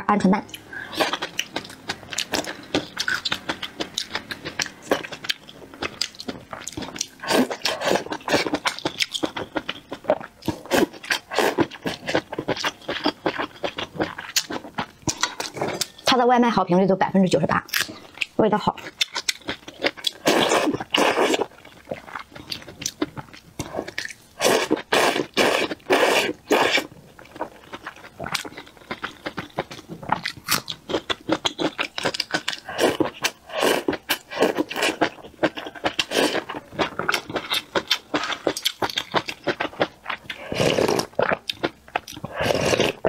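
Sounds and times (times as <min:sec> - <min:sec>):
person slurping noodles: 0:20.2 - 0:21.5, 0:23.6 - 0:26.9, 0:32.6 - 0:35.1, 0:36.0 - 0:36.5, 0:40.3 - 0:41.2, 0:42.3 - 0:43.0.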